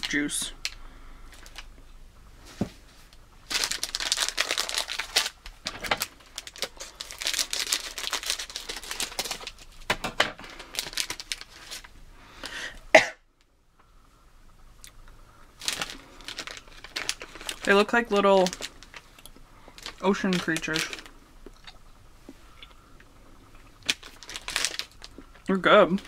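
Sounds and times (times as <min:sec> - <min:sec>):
plastic wrapper crinkling and tearing: 0:00.0 - 0:01.7, 0:03.1 - 0:12.0, 0:15.6 - 0:21.8, 0:23.5 - 0:26.0.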